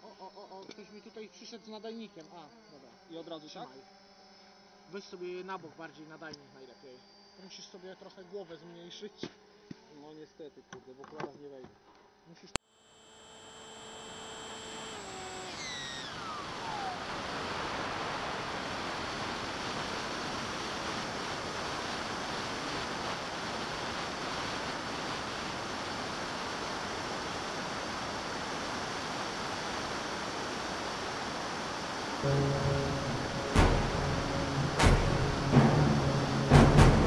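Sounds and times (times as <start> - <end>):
whine falling in pitch: 12.8 - 37.0.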